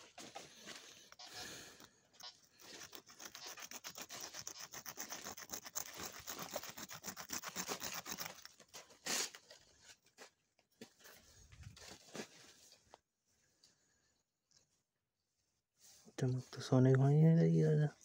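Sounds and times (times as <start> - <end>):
fingers scraping stone: 1.1 - 9.5.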